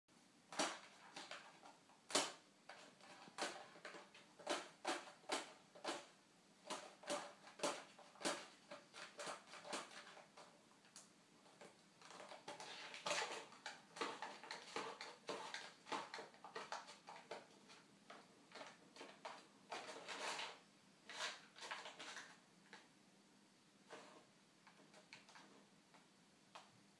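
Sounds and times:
cat tapping a treat packet: 12.0s - 20.0s.

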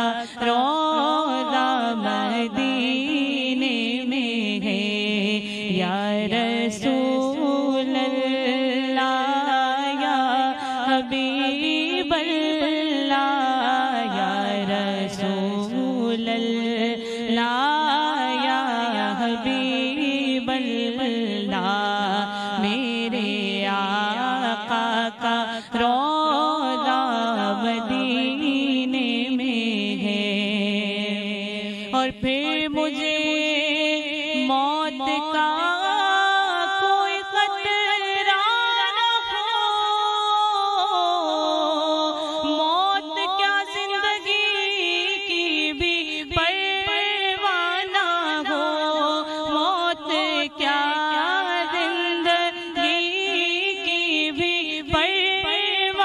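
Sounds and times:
woman singing devotional song: 0.0s - 56.0s.

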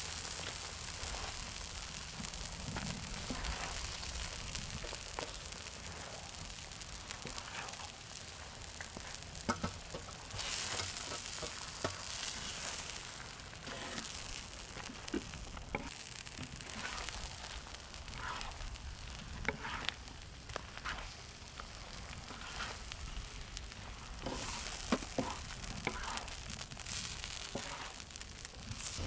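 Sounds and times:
food sizzling on griddle: 0.0s - 29.0s
spatula scraping and knocking: 13.6s - 14.2s, 14.8s - 17.2s, 19.4s - 21.2s, 24.2s - 26.4s, 27.4s - 28.0s.

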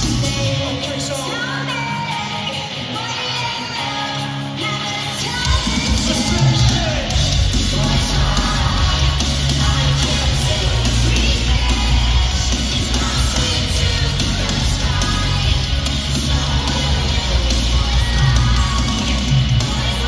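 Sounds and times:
crowd noise: 0.0s - 20.0s
live rock band through loudspeakers: 0.0s - 20.0s
person singing: 0.0s - 20.0s.

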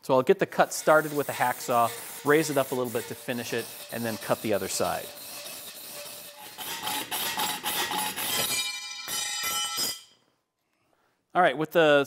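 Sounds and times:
hacksaw rasping through steel: 0.6s - 10.1s.

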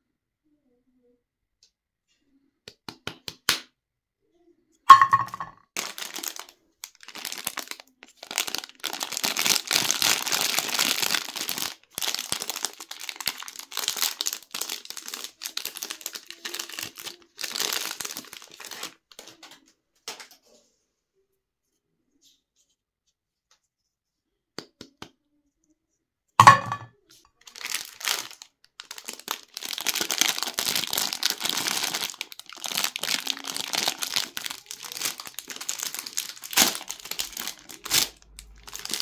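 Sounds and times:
plastic wrapper tearing and crinkling: 5.7s - 19.6s, 27.4s - 39.0s.

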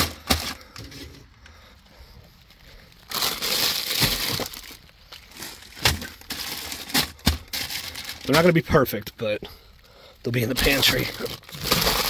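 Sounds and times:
plastic bags crinkling: 0.0s - 1.2s, 2.4s - 8.7s, 10.4s - 12.0s.

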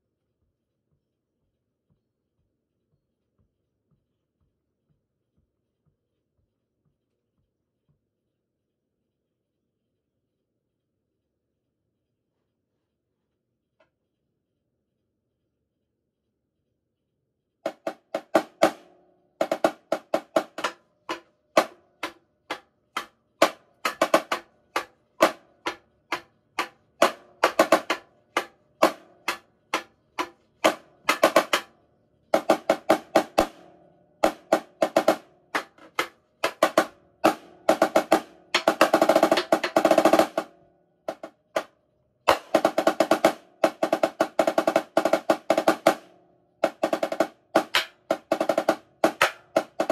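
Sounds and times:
snare drum strokes and rolls: 17.7s - 41.7s, 42.3s - 49.9s.

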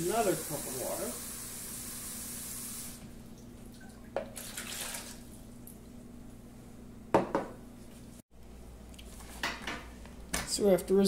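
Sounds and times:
faucet water running into cup: 0.0s - 3.0s.

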